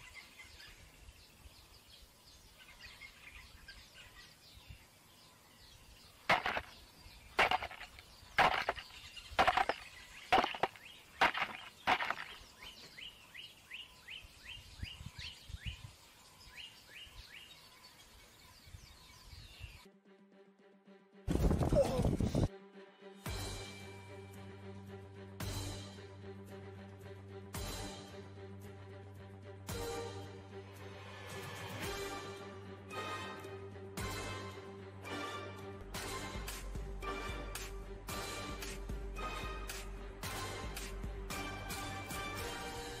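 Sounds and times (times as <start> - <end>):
small bird chirping: 0.0 - 19.8.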